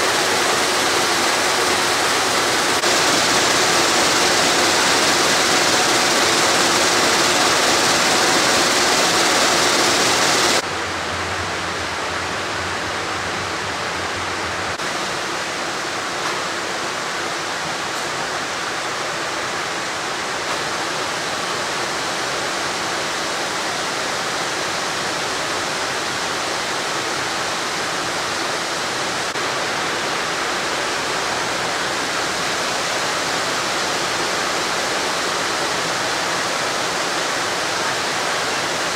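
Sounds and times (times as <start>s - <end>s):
yarn-winding machinery: 0.0s - 10.6s.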